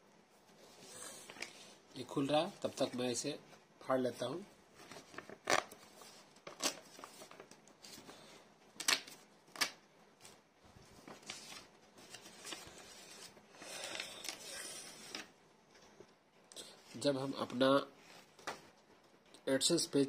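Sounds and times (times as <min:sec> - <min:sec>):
paper rustling: 0:04.8 - 0:15.3
paper envelope tearing: 0:04.9 - 0:05.8, 0:06.4 - 0:07.4.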